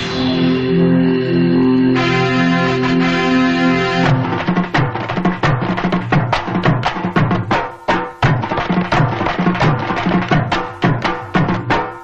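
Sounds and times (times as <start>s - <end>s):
steady held tone: 0.0s - 8.2s
drums beaten in fast rhythm: 4.0s - 12.0s.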